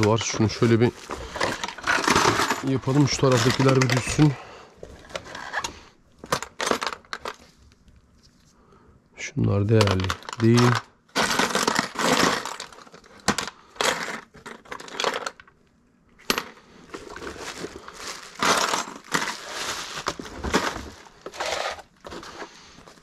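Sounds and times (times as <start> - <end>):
plastic box clattering: 0.0 - 7.5, 9.7 - 15.4, 16.3 - 23.0
bubble wrap crinkling: 17.0 - 23.0.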